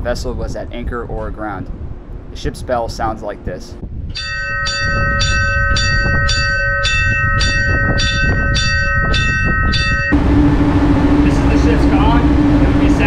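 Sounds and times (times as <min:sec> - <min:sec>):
ship's bell ringing rapidly: 0:04.2 - 0:13.0.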